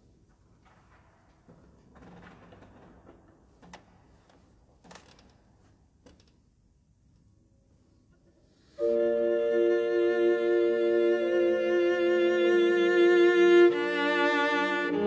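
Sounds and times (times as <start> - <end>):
small knocks and rustles: 0.2 - 6.5
bowed cello: 8.8 - 15.0.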